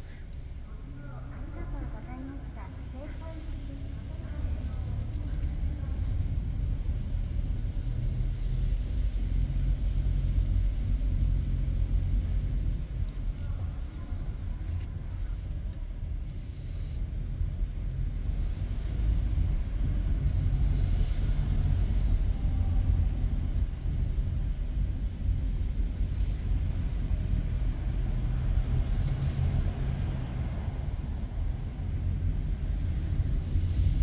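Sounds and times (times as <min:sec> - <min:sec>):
car engine and road noise: 0:00.0 - 0:34.0
faint hiss: 0:20.2 - 0:34.0.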